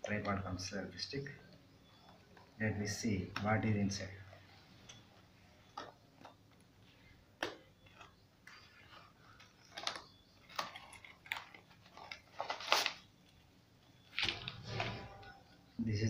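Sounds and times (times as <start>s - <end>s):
cardboard packaging crinkling: 7.8s - 13.4s.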